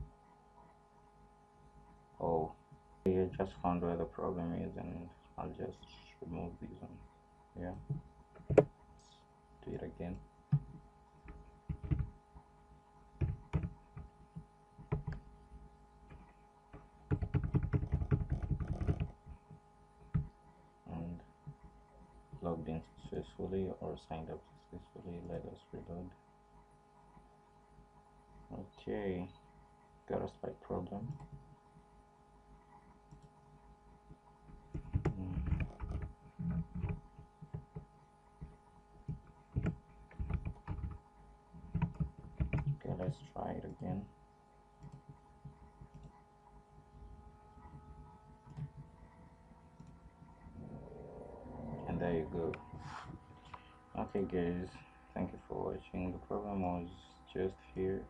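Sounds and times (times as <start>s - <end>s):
steady electrical hum: 0.0s - 58.0s
keyboard typing: 10.5s - 12.1s, 13.2s - 14.1s, 14.8s - 19.5s, 34.5s - 41.0s, 41.6s - 42.9s, 44.8s - 46.2s.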